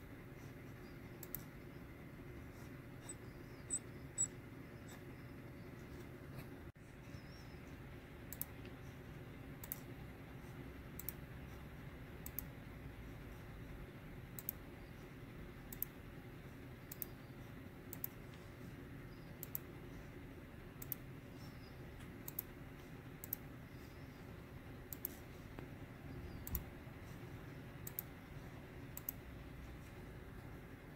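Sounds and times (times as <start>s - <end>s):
faint low room hum: 0.0s - 30.9s
sharp computer clicks: 0.8s - 1.9s, 7.2s - 10.1s, 10.7s - 11.6s, 12.2s - 12.7s, 14.2s - 19.9s, 20.7s - 29.5s.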